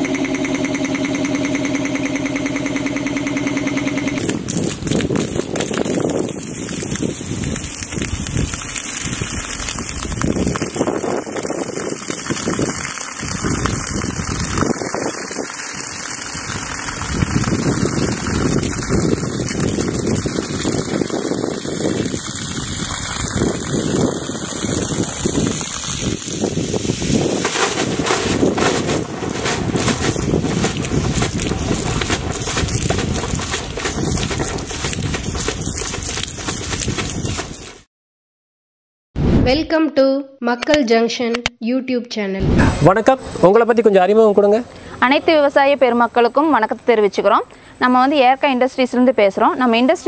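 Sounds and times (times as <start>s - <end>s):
water rushing out of a pipe: 4.2s - 37.9s.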